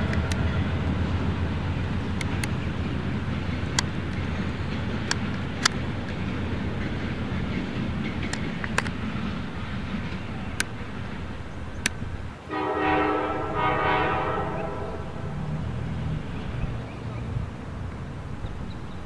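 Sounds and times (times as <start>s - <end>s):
diesel locomotives rumbling: 0.0s - 19.0s
sharp clicks: 4.9s - 6.2s
train horn: 12.5s - 15.5s.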